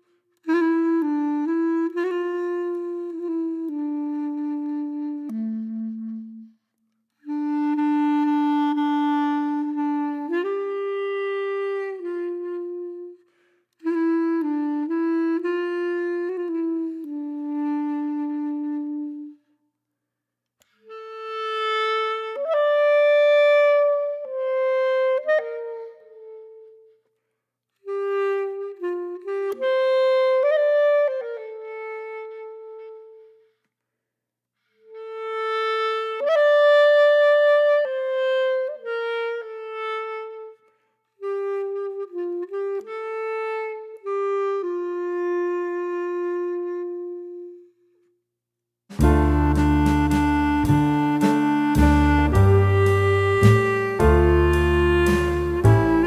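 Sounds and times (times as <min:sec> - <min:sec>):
instrumental melody: 0:00.4 - 0:13.2, 0:48.9 - 0:56.0.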